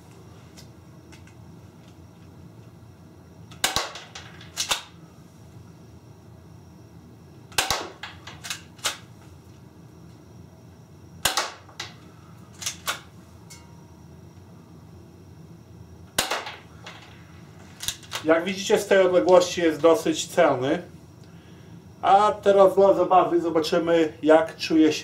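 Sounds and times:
airsoft pistol shots: 3.6s - 4.1s, 7.6s - 8.0s, 11.2s - 11.7s, 16.2s - 16.6s.

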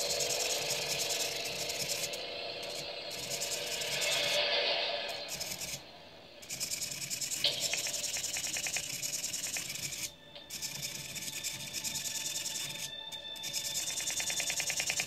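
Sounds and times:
small motor whirring: 0.0s - 15.0s.

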